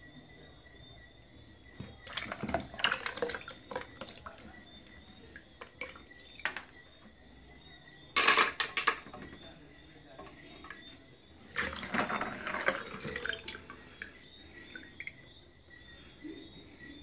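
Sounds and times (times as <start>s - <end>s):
peanuts splashing into water: 1.8s - 6.6s, 10.2s - 15.3s.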